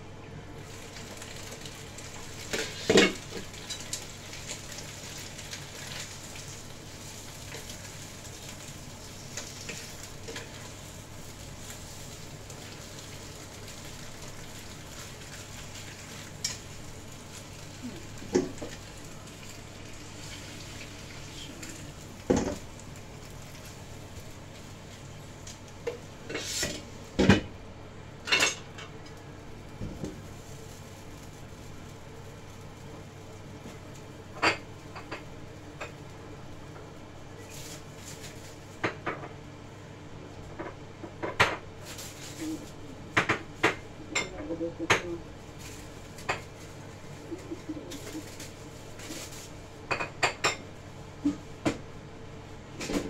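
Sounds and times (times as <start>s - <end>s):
greens sizzling in a wok: 0.0s - 53.0s.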